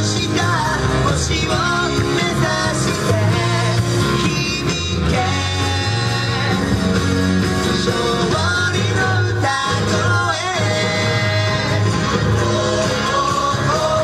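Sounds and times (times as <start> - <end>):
rock song over loudspeakers: 0.0 - 14.0.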